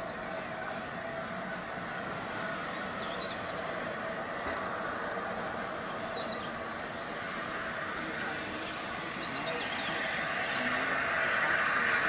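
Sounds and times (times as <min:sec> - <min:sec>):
steady background noise: 0:00.0 - 0:12.0
songbird singing: 0:02.4 - 0:12.0.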